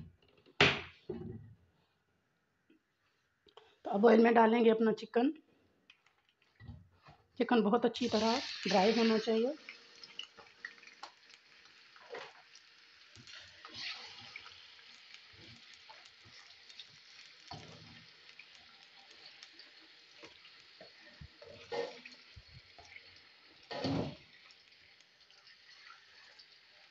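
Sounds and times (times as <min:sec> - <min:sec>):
chicken sizzling in oil: 0:08.0 - 0:26.9
spatula scraping a pan: 0:13.3 - 0:14.5, 0:20.8 - 0:22.2, 0:23.6 - 0:24.2.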